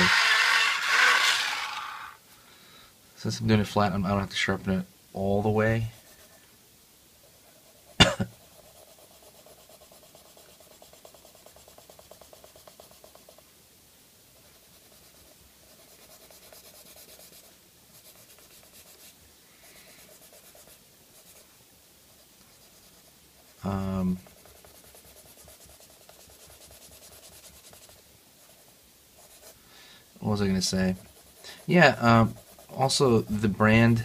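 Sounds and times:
colored pencil scratching paper: 0.0 - 2.2, 5.8 - 6.4, 7.4 - 13.4, 14.4 - 21.5, 22.1 - 29.6, 30.3 - 33.5.

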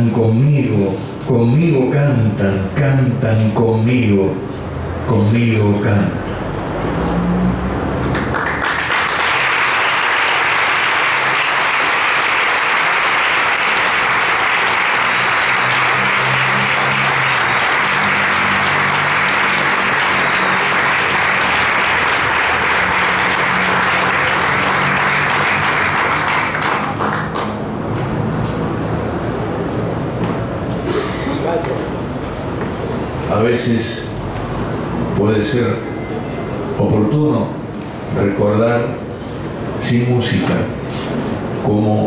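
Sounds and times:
audience applauding: 8.0 - 27.8.

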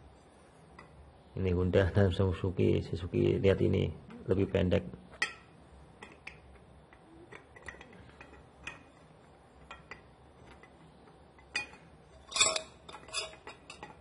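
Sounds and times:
metal pipes tapping on tile floor: 5.1 - 14.0
metal pipes clattering together: 7.3 - 10.8, 11.4 - 14.0.

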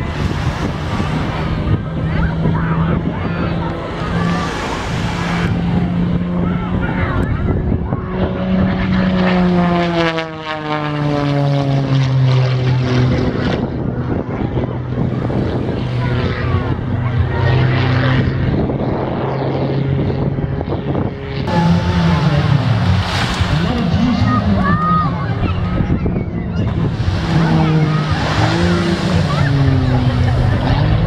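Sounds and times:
propeller plane engine drone: 0.0 - 31.0.

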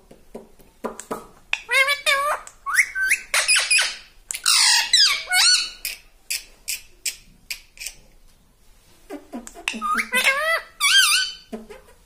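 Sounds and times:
parakeet squawks and whistles: 1.6 - 5.9, 9.7 - 11.5.

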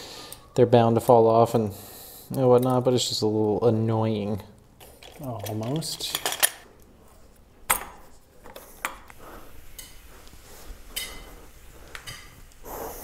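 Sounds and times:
metal brackets clicking on wood: 5.0 - 6.6.

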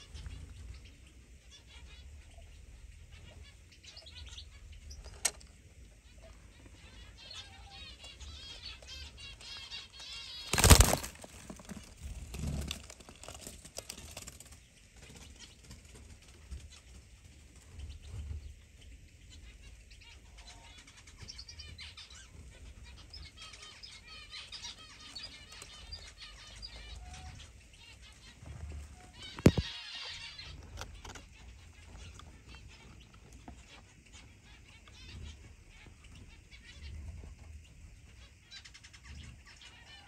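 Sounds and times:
small birds chirping: 0.0 - 40.0
wings fluttering: 10.0 - 16.3, 29.0 - 29.8
straw rustling: 10.4 - 14.4.

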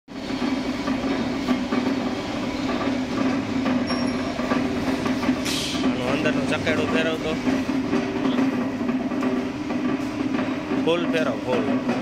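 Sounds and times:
mixer motor humming: 0.1 - 12.0.

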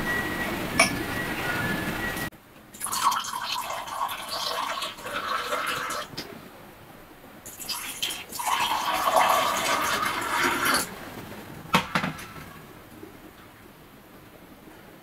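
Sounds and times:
liquid pouring into a glass: 2.8 - 6.1, 7.5 - 10.9.

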